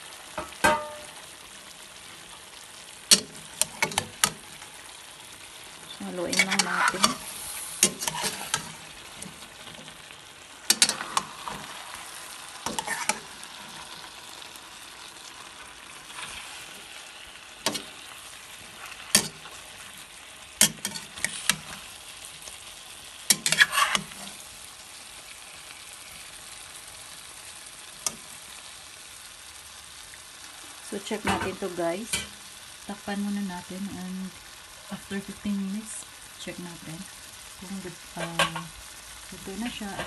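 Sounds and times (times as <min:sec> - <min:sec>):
food sizzling in a pot: 0:00.0 - 0:40.0
utensil scraping and clanking pot: 0:03.1 - 0:04.6, 0:06.0 - 0:10.0, 0:10.6 - 0:13.9, 0:18.8 - 0:19.8, 0:20.6 - 0:21.9, 0:23.3 - 0:24.4, 0:38.2 - 0:38.7.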